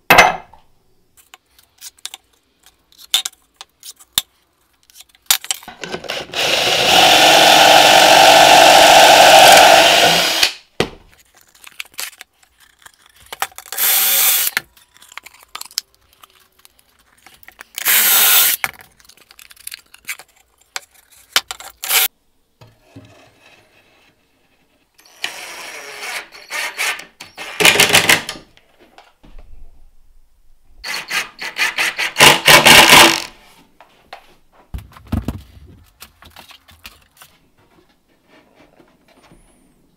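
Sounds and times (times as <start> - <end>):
power drill boring into wood: 6.0 - 10.6, 13.8 - 14.5, 17.8 - 18.6, 21.9 - 22.1, 25.0 - 27.8.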